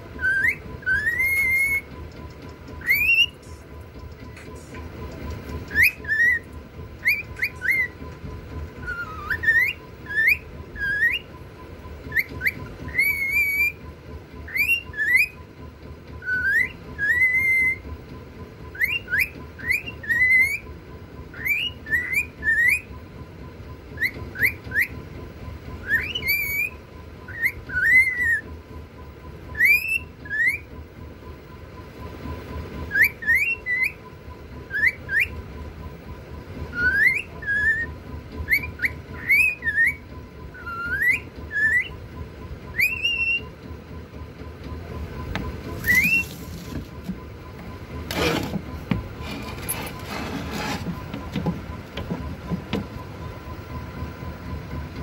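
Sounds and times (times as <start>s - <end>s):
cockatiel whistling: 0.1s - 3.6s, 5.5s - 15.5s, 16.1s - 17.9s, 18.7s - 20.7s, 21.3s - 23.0s, 24.0s - 25.1s, 25.7s - 28.6s, 29.5s - 30.8s, 32.8s - 35.4s, 36.7s - 42.0s, 42.6s - 43.6s, 45.2s - 51.4s.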